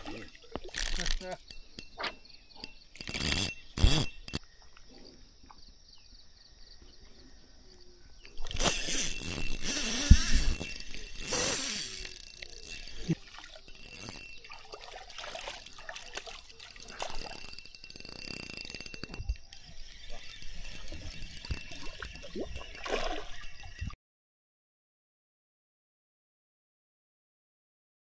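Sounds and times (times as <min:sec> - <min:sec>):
fishing reel clicks and rustles: 0:00.0 - 0:04.4, 0:08.2 - 0:24.0
fish splashing in water: 0:08.3 - 0:18.0, 0:20.1 - 0:23.9.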